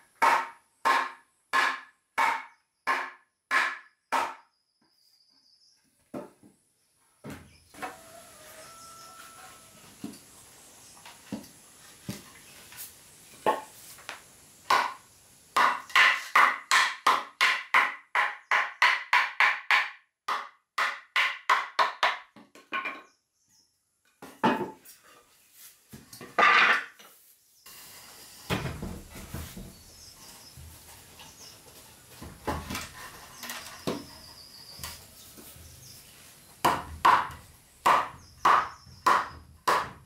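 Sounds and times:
hammer striking wood: 0.2 - 4.4, 14.7 - 15.0, 15.6 - 22.4, 36.6 - 40.0.

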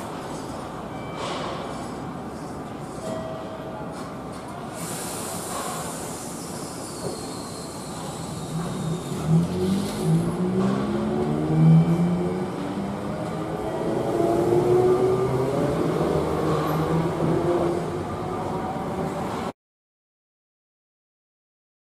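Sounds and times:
tram high hiss: 4.6 - 10.2
tram motor hum: 8.3 - 19.5.

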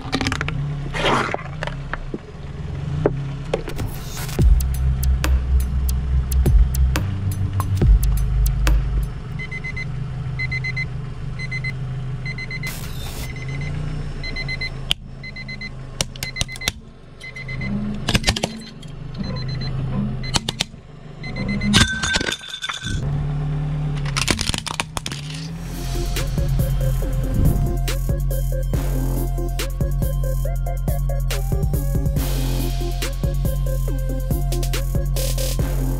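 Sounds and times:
car engine hum: 0.0 - 35.9
alarm clock beeping: 10.4 - 11.7, 13.3 - 15.7
plastic clock crushed by tyre: 24.0 - 25.4.

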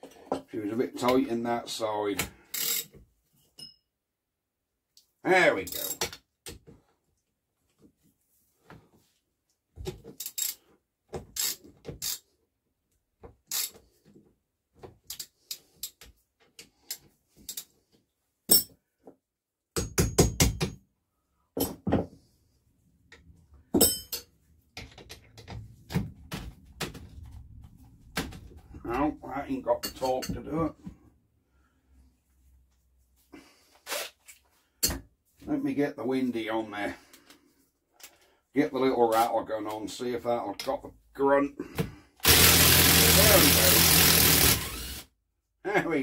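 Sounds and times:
ratchet clicking on bolts: 11.4 - 12.2, 13.5 - 13.8.

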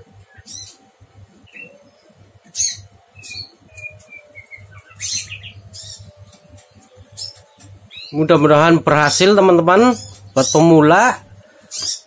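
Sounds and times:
faint low hum: 0.0 - 12.0
small bird chirping: 0.2 - 8.4, 11.6 - 12.0.

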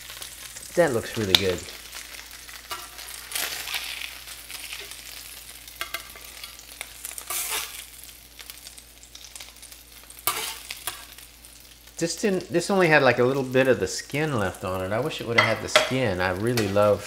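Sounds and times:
grease sizzling in a skillet: 0.0 - 17.0
metal spatula scraping a pan: 7.2 - 7.8, 10.2 - 11.0.

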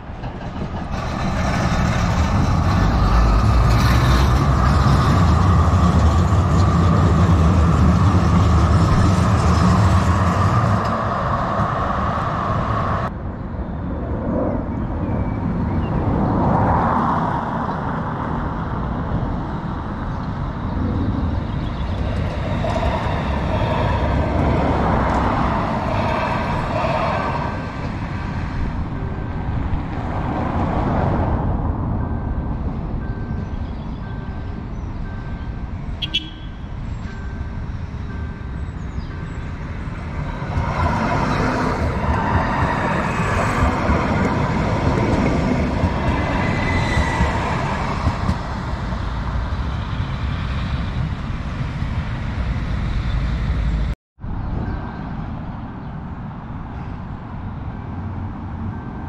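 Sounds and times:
heavy vehicle passing with whine: 0.0 - 33.0
road traffic: 0.0 - 59.0.

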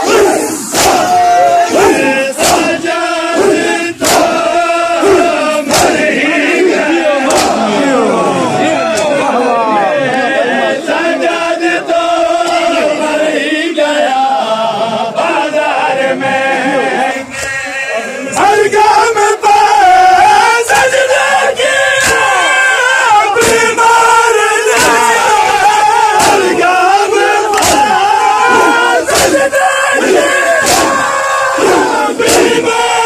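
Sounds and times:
crowd of men chanting: 0.0 - 33.0
hands slapping chests: 2.4 - 2.8, 4.0 - 4.4, 5.1 - 6.1, 7.2 - 7.7, 27.5 - 28.0, 28.6 - 29.4, 30.6 - 31.0, 31.6 - 32.6.

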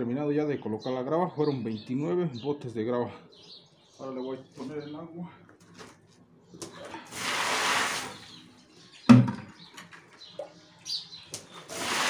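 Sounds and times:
water pouring onto gravel: 7.0 - 8.4, 11.5 - 12.0.

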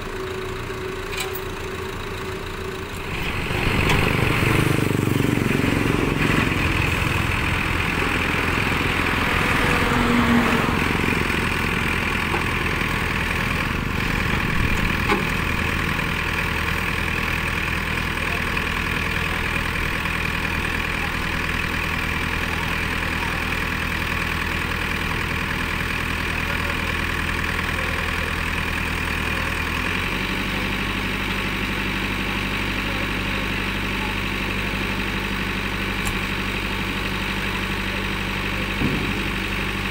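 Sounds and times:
diesel engine running: 0.0 - 39.9
hydraulic arm working: 0.1 - 5.0.

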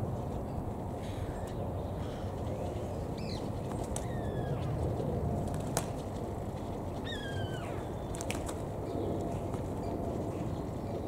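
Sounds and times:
low outdoor rumble: 0.0 - 11.0
falling bird calls: 1.0 - 4.8, 7.0 - 9.0
pigeon wing slaps: 3.7 - 4.2, 5.4 - 6.2, 8.1 - 8.6.

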